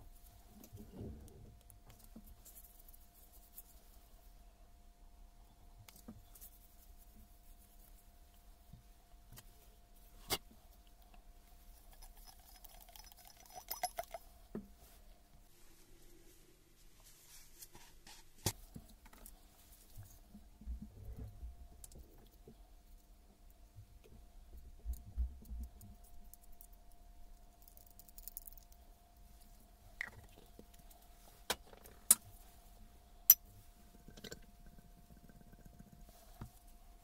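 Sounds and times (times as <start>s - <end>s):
faint steady hum: 0.0s - 37.0s
hands rubbing and knocking metal parts: 11.5s - 15.0s
metallic clicks and clinks: 11.7s - 14.2s.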